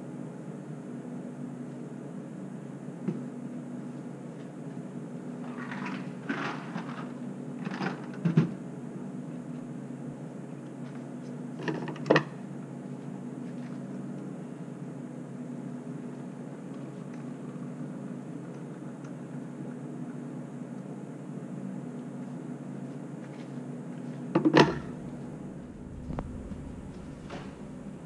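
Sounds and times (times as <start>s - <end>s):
steady low hum: 0.0s - 28.0s
objects clattering: 5.4s - 8.5s
cabinet doors opening and shutting: 24.4s - 25.0s, 26.1s - 27.9s.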